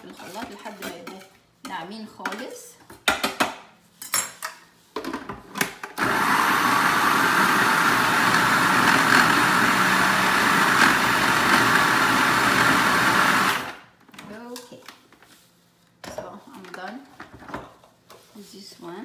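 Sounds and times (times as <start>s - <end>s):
food processor motor chopping: 6.0s - 13.8s.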